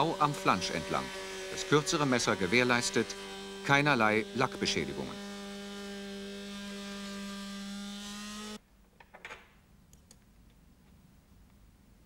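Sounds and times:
oscillating cutter whining: 0.0s - 8.6s.

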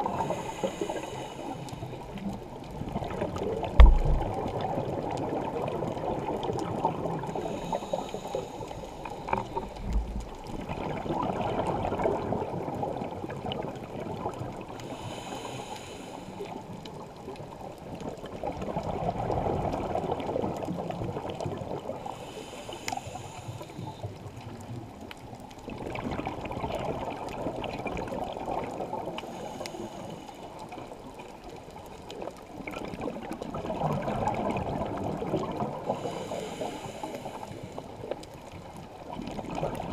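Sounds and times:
hissing regulator inhale: 0.0s - 2.1s, 7.4s - 9.9s, 14.8s - 16.5s, 22.1s - 24.0s, 29.2s - 30.7s, 35.8s - 38.0s
bubbling exhale underwater: 2.8s - 8.6s, 9.2s - 14.6s, 32.7s - 37.0s, 39.1s - 39.9s.

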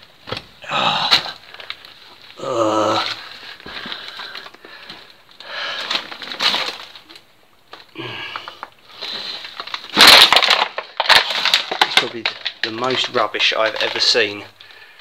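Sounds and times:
man grunting: 0.6s - 1.4s, 2.4s - 3.2s
heavy breathing: 2.6s - 6.1s, 7.9s - 9.6s.

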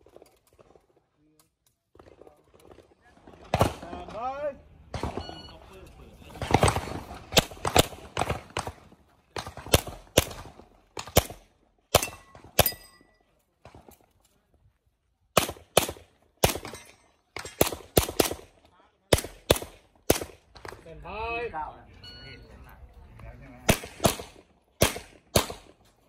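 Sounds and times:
pistol shots: 6.4s - 12.8s, 15.3s - 20.8s, 23.7s - 25.8s.

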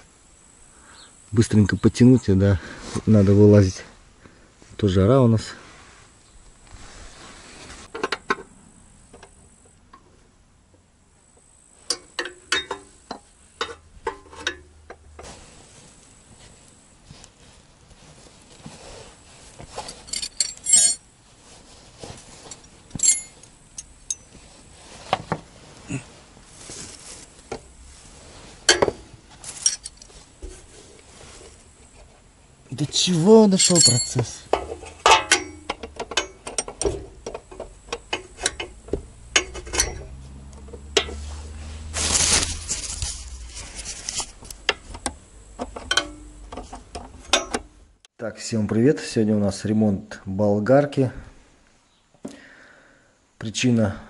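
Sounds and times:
short rustling hiss: 5.5s - 8.0s, 15.0s - 32.3s, 38.2s - 45.6s
metal wrenches clinking: 11.9s - 12.9s, 19.8s - 21.1s, 22.5s - 24.4s, 28.6s - 30.2s, 33.2s - 41.3s, 45.6s - 47.7s.

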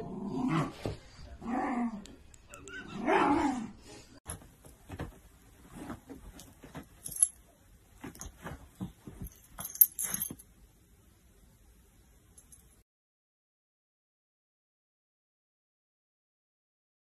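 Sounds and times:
light metallic jingling: 6.2s - 10.5s.

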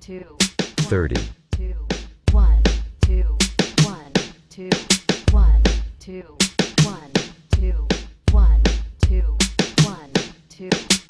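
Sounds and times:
hip-hop beat: 0.8s - 1.3s.

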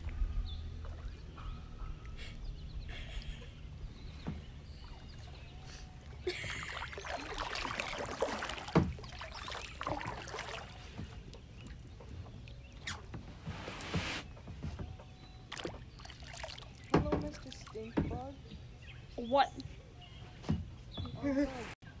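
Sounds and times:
kayak paddle splashing water: 4.2s - 13.0s, 15.5s - 18.2s.

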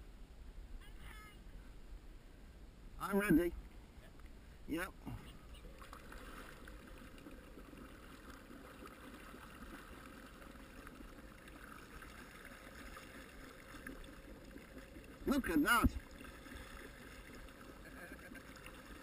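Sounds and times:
water washing: 5.6s - 19.0s.

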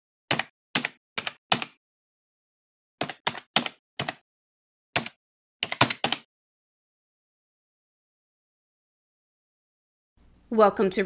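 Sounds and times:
keyboard keystrokes clicking: 0.3s - 1.8s, 3.0s - 4.2s, 5.0s - 6.3s.

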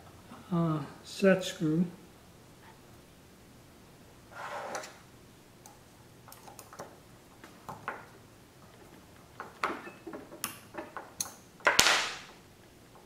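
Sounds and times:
metal tool scraping: 4.3s - 5.0s.

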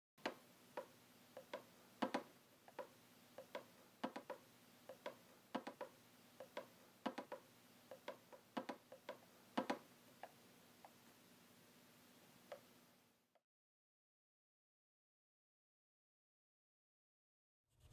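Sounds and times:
sharp light clicks and taps: 0.2s - 11.0s
faint steady hum: 0.2s - 13.4s.

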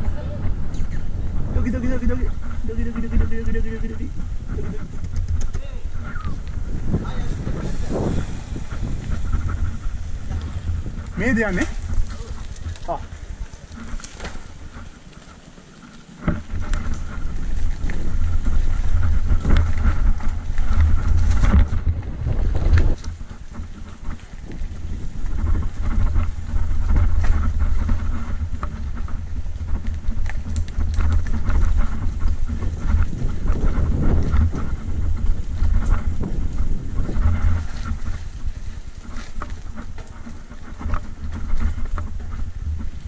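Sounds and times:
bike rattling over bumps: 0.0s - 43.0s
bike tyres rolling over dirt: 0.0s - 43.0s
wind rumble on microphone: 0.0s - 43.0s.

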